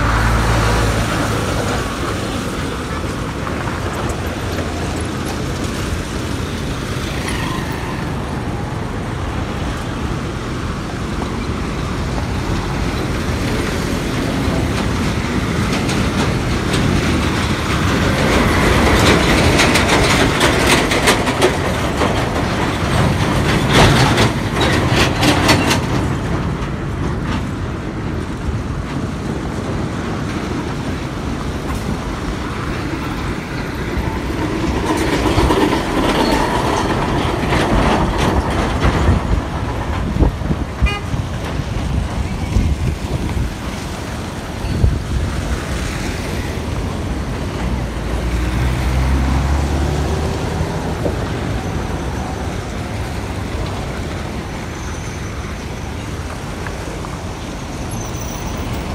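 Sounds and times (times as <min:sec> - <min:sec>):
traffic driving past: 0:00.0 - 0:58.9
vehicle horn tooting: 0:40.8 - 0:41.2.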